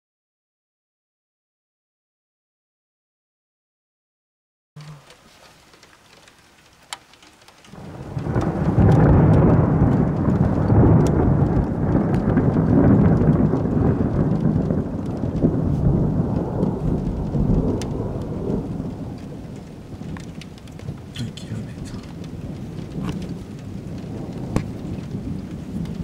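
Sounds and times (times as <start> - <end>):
raindrops ticking: 4.8 - 26.0
thunder rumbling: 7.7 - 26.0.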